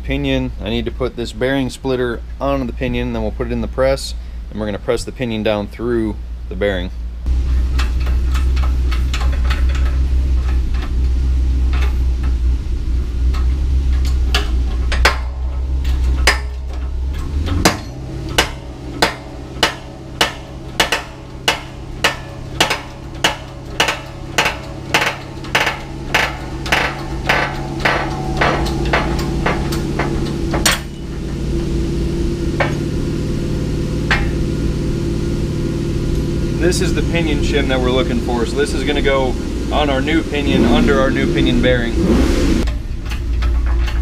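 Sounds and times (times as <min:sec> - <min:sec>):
low hum: 0:06.2 - 0:44.0
metallic clank of press: 0:13.3 - 0:33.1.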